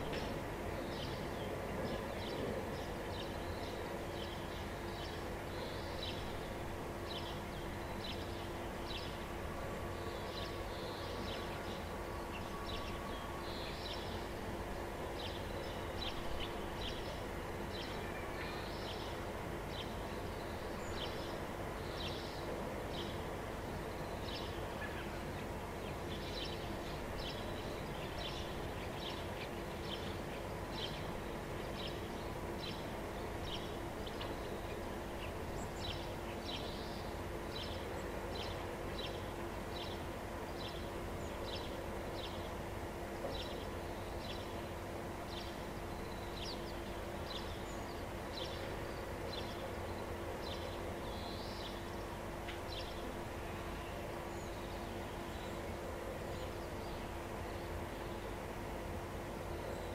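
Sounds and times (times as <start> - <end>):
faint steady hum: 0.0 - 59.9
small birds chirping: 23.9 - 53.2.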